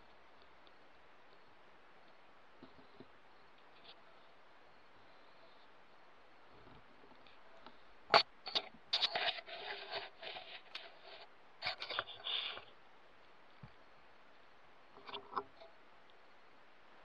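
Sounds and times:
scraping rustle: 8.1 - 12.8.

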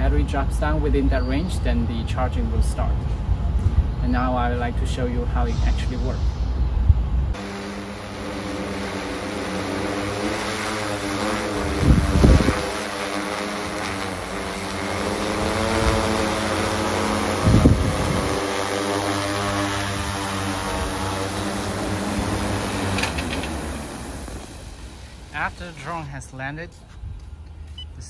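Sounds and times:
drone propellers humming: 3.1 - 26.4
wind gusts buffeting microphone: 3.2 - 18.6.

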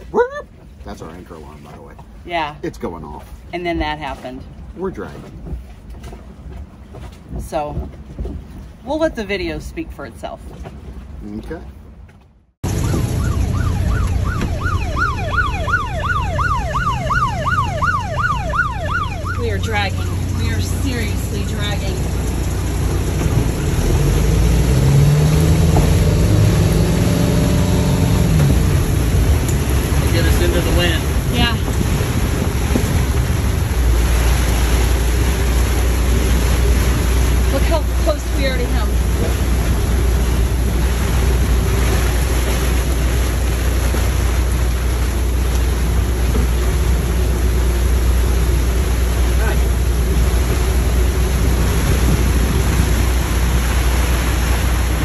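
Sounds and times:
wind noise on microphone: 5.2 - 9.0, 21.7 - 37.8, 38.7 - 55.0
boat engine droning: 12.6 - 55.0.

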